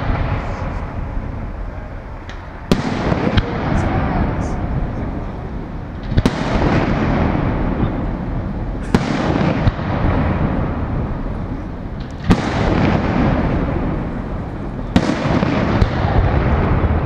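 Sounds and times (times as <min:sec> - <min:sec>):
fireworks bangs with echo: 0:00.0 - 0:17.0
rumble of fireworks display: 0:00.0 - 0:17.0.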